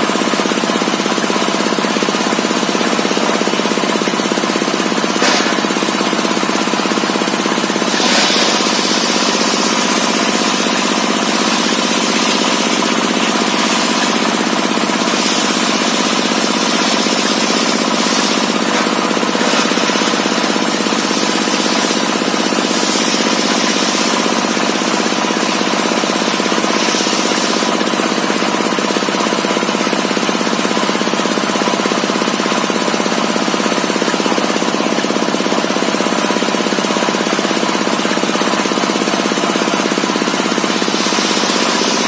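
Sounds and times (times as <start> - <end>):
circular saw cutting wood: 2.7 - 29.2, 39.6 - 42.0
saw drive drone: 5.0 - 25.1.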